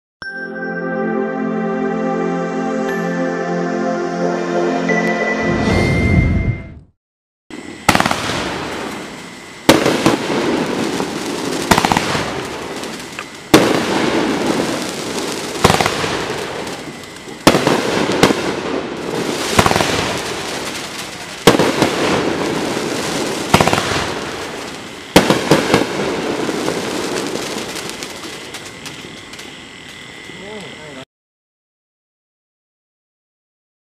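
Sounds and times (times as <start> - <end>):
fireworks reports: 7.6 - 29.6, 30.2 - 31.1
fireworks crackling and fizzing: 7.6 - 30.7.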